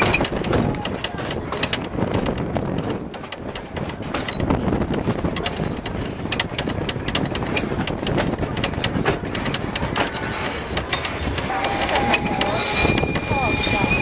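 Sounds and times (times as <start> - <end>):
train rumble: 0.0 - 14.0
wheels clicking over rails: 0.0 - 14.0.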